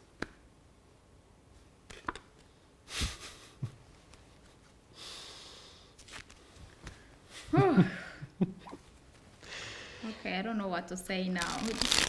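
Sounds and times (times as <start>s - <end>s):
woman breathing emotionally: 4.9s - 6.0s, 9.4s - 10.3s.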